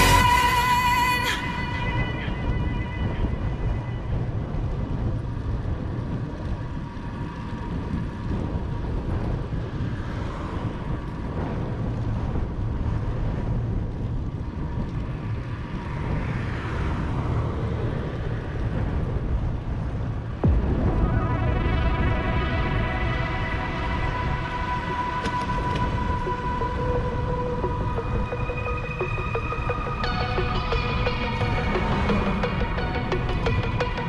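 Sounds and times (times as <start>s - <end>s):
road rumble: 0.0s - 34.0s
wind rushing over microphone: 0.0s - 34.0s.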